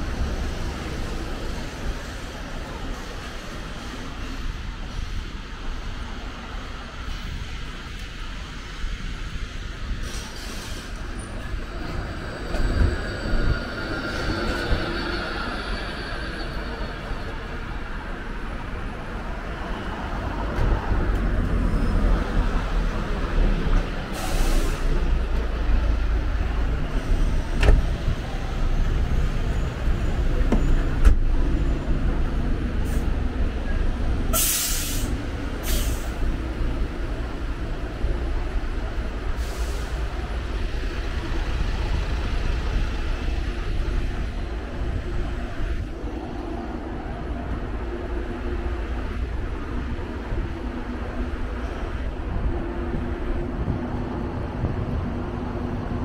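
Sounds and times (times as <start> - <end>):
air brake hisses: 10.0 - 11.1, 24.1 - 25.0, 34.3 - 36.2, 39.4 - 40.1.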